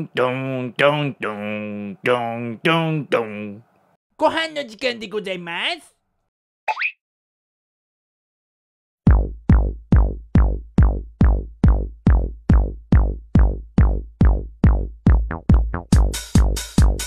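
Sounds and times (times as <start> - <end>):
drum machine kick: 9.1 - 17.0.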